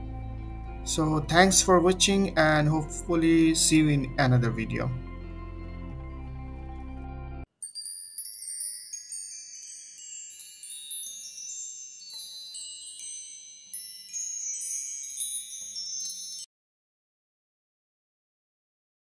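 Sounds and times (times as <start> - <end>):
wind chimes tinkling: 7.5 - 16.5.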